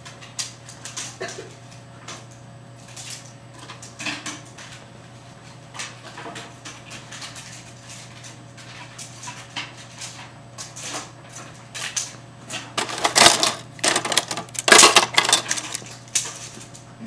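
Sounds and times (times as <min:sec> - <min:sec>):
small hard objects clattering: 0:12.8 - 0:16.6.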